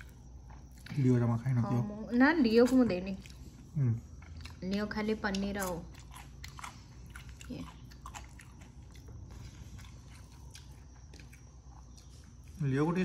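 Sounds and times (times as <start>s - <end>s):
chewing: 0.0s - 1.5s, 2.5s - 12.8s.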